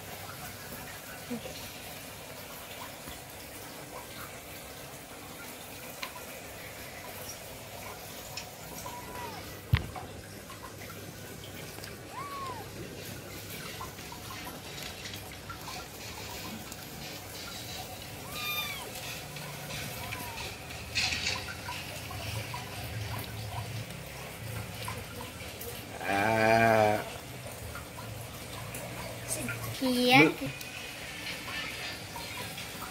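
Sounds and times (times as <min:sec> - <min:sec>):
aquarium water bubbling: 0:00.0 - 0:32.9
kitten mewing: 0:08.7 - 0:09.6, 0:12.1 - 0:12.8, 0:18.2 - 0:19.0
wavering cry: 0:08.7 - 0:09.6, 0:12.1 - 0:12.7, 0:18.2 - 0:19.0.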